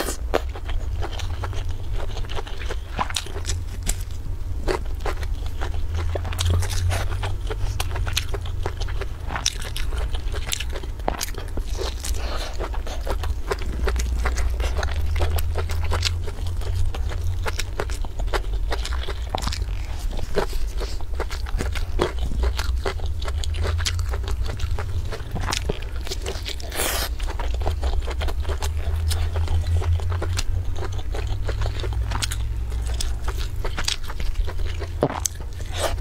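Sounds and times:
chewing and biting crunchy food: 0.0 - 36.0
steady low hum: 0.0 - 36.0.

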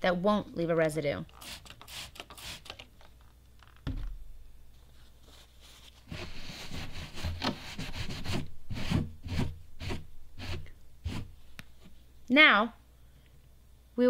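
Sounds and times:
spray bottle squirting: 1.3 - 2.8
dull thump: 3.8 - 4.3
cloth rubbing on plastic: 4.9 - 12.0.

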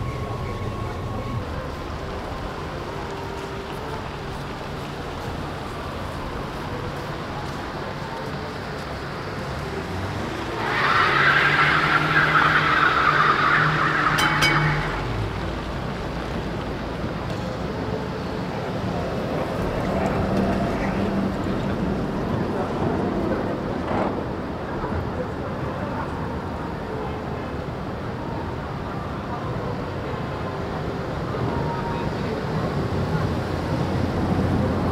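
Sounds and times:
tram rumbling on rails: 0.0 - 34.9.

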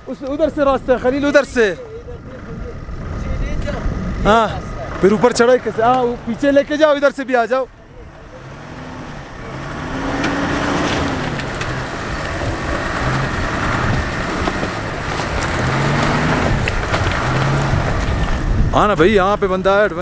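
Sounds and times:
jeep engine pulling hard: 0.0 - 20.0
tyres crunching over loose stones: 9.6 - 20.0.

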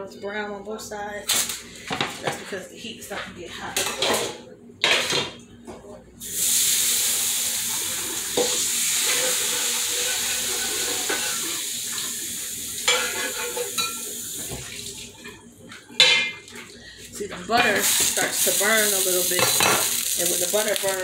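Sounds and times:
hot pan sizzling under water: 6.2 - 15.3, 17.5 - 21.0.

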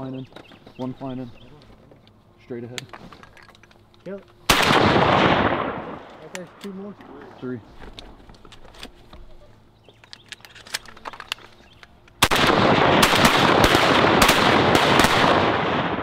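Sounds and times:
shotguns firing volley: 4.5 - 7.2, 12.2 - 16.0.

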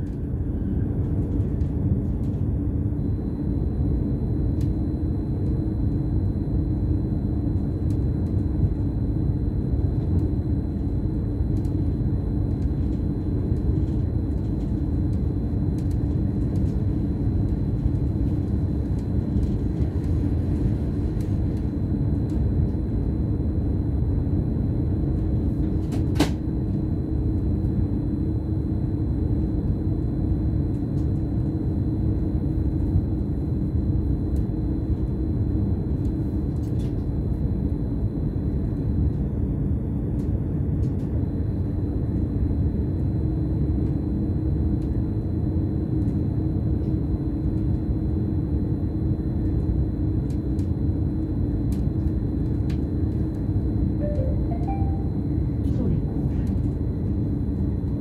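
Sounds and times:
faint high whine: 53.4 - 58.0
train running rumble: 54.0 - 56.7.

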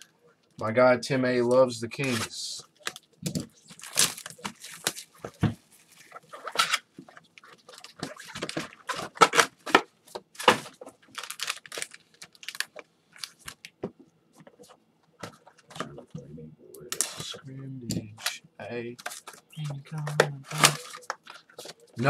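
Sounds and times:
plastic wrappers tearing and crinkling: 2.0 - 13.7, 16.9 - 17.4, 19.0 - 22.0.

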